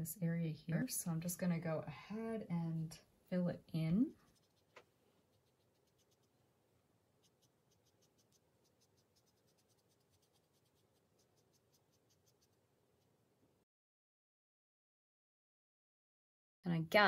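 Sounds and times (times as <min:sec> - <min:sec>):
paintbrush scratching on paper: 0:04.1 - 0:06.5, 0:07.2 - 0:13.2.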